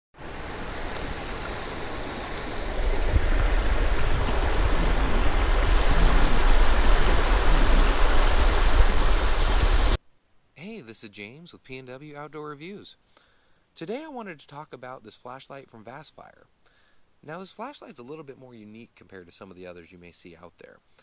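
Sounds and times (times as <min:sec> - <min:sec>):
water rushing over rocks: 0:00.2 - 0:10.0.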